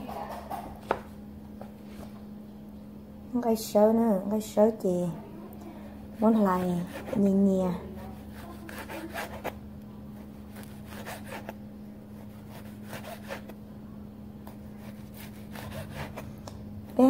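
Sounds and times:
steady low hum: 0.0s - 17.0s
knife slicing on cutting board: 12.2s - 13.5s, 14.7s - 16.2s.

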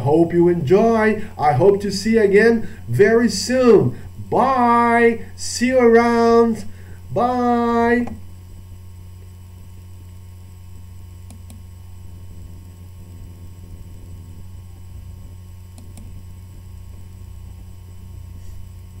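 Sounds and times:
low electrical hum: 0.0s - 19.0s
faint double clicks: 15.7s - 16.2s.

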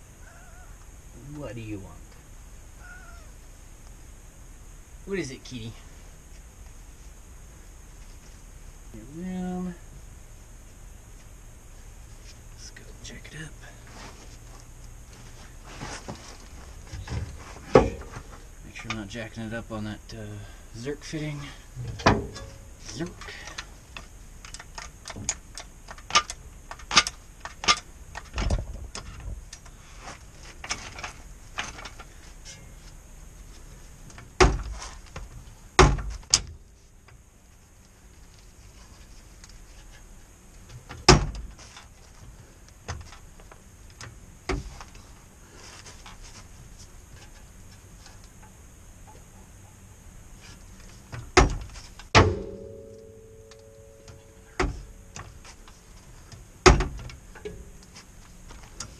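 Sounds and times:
heavy metal clanks: 21.8s - 22.7s, 52.1s - 54.8s.

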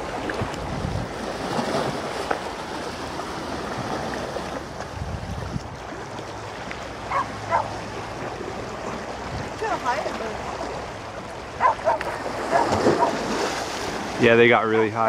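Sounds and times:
wind buffeting microphone: 0.0s - 2.2s, 4.7s - 6.2s.

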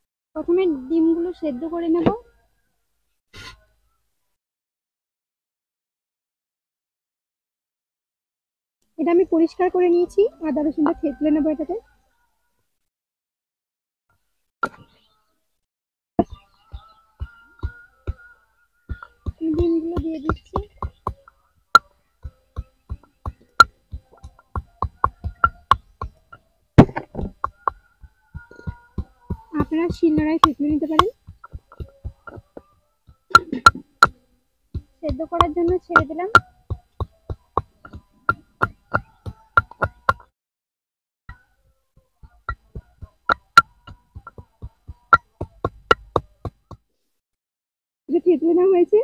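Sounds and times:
wooden pestle pounding in mortar: 16.2s - 18.3s, 18.9s - 34.2s, 34.8s - 40.3s, 42.2s - 46.8s
pestle pounding in brass mortar: 18.9s - 21.3s, 26.8s - 27.8s, 34.8s - 40.3s, 42.3s - 46.8s.

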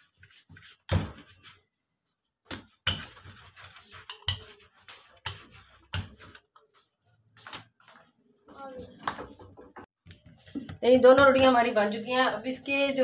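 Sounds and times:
rolling pin rolling dough: 0.0s - 8.2s, 9.2s - 13.0s.

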